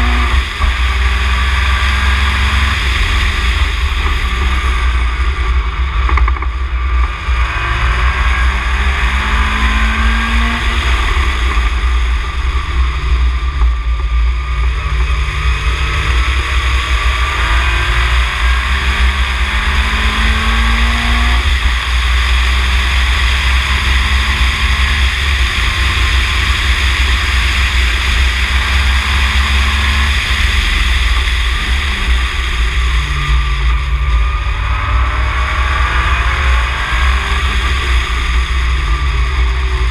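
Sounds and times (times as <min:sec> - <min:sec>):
race car engine revving: 0:00.0 - 0:39.9.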